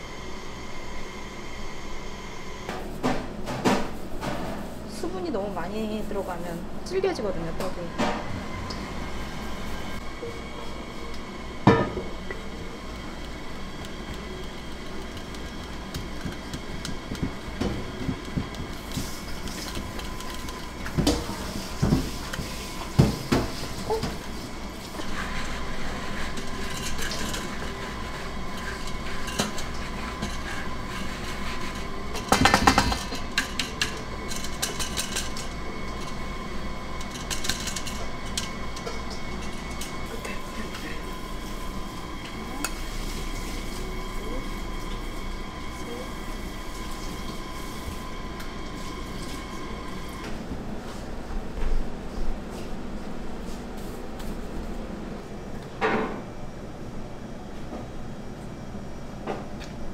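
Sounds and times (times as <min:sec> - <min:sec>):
kitchen bowls and utensils clinking: 0:24.9 - 0:36.3, 0:36.9 - 0:41.0.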